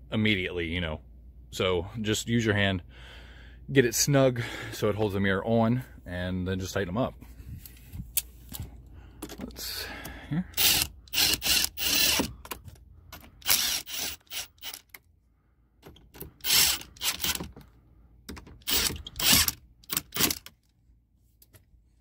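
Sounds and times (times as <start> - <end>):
impact driver bursts: 10.6 - 12.4, 13.2 - 14.9, 16.3 - 17.6, 18.6 - 20.5.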